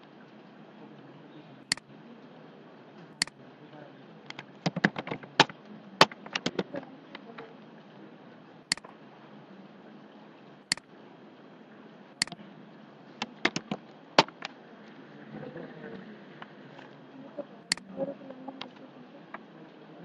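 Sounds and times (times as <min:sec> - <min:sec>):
steady low hiss: 0:00.0 - 0:20.0
mouse and keyboard clicks: 0:04.3 - 0:06.7, 0:13.2 - 0:14.5, 0:17.7 - 0:17.9.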